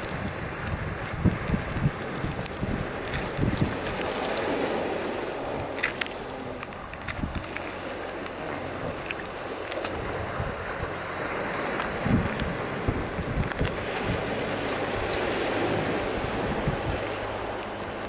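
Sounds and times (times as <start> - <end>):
cat chewing: 0.0 - 18.0
surf on pebble shore: 0.0 - 18.0
wind noise on microphone: 0.0 - 18.0.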